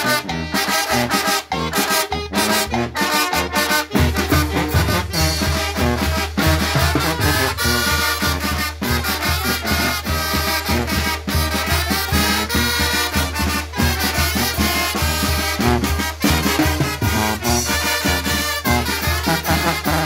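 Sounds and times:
brass band playing upbeat tune: 0.0 - 20.0
pulsing bass line: 3.9 - 7.8.

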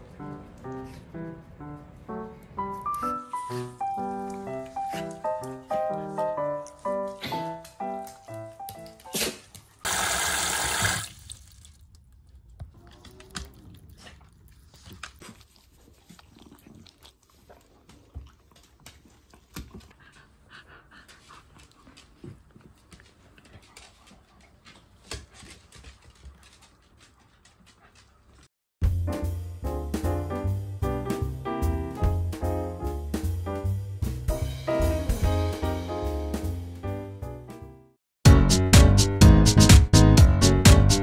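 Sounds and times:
running water rush: 9.9 - 11.4.

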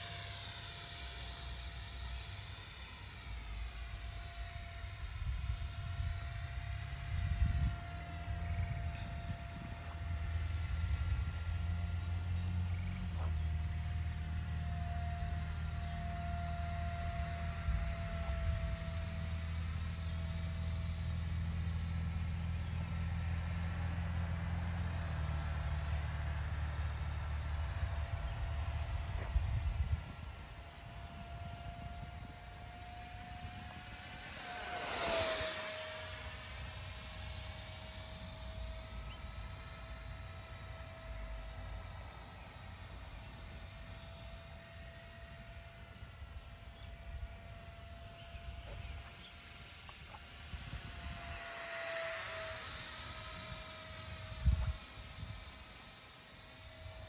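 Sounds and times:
electric ducted fan whine: 0.0 - 57.0.

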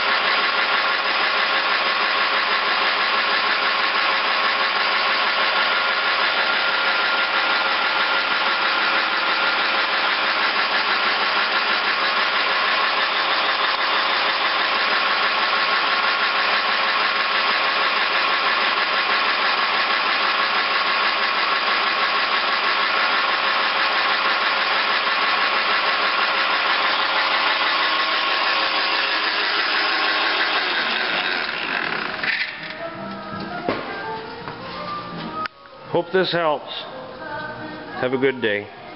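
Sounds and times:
milling machine running: 0.0 - 32.8
whining gear tones: 3.2 - 33.6.

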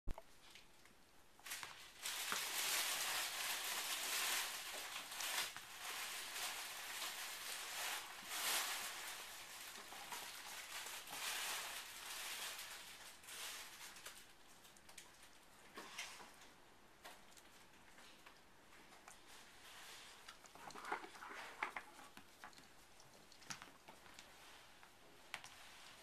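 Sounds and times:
puppy rustling on blanket: 1.5 - 14.2, 18.8 - 26.0.

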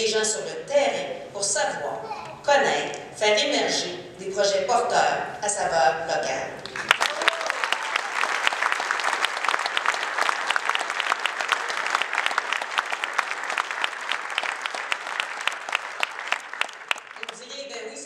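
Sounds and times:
audience applauding: 6.6 - 17.4.

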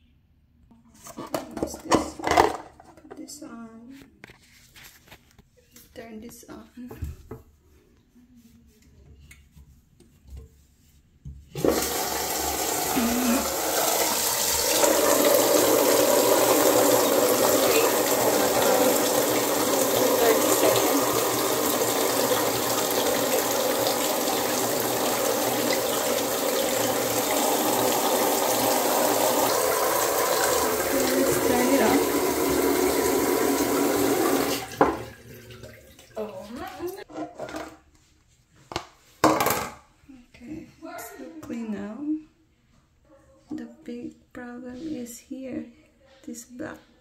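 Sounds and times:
water gushing into toilet tank: 11.6 - 36.6.

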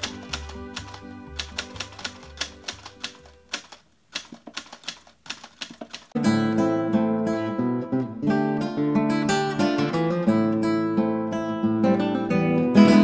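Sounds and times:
soft background music: 0.0 - 3.7
typewriter keys clacking: 0.0 - 6.2.

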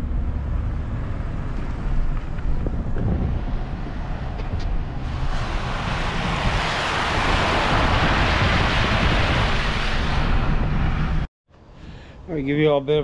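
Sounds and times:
truck engine rumble: 0.0 - 11.3
tyres splashing through floodwater: 5.0 - 10.5.

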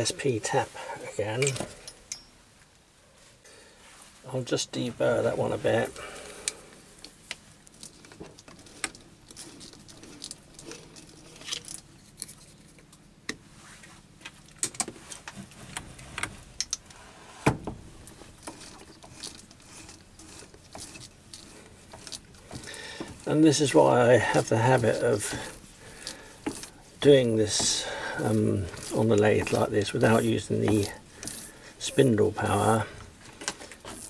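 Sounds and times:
metallic clinks: 1.3 - 2.4
tool scraping plastic edge: 18.4 - 23.3, 24.3 - 31.6
lathe chuck turned by hand: 18.5 - 31.6.

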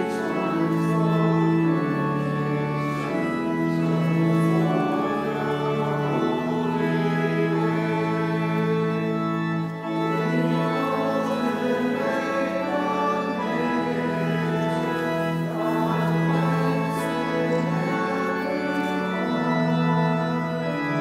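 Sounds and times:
church organ playing held chords: 0.0 - 21.0.

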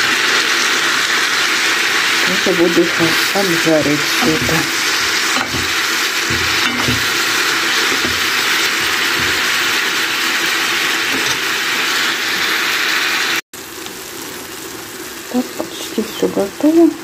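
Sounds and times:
vegetables sizzling in a skillet: 0.0 - 17.0
spoon knocking against pan: 4.0 - 9.7.

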